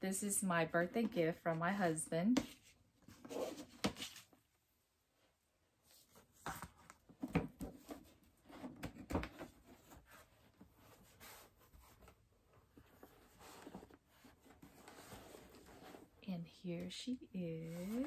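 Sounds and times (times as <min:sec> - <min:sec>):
rustling of cardboard and fabric: 0:02.3 - 0:04.5, 0:05.8 - 0:18.0.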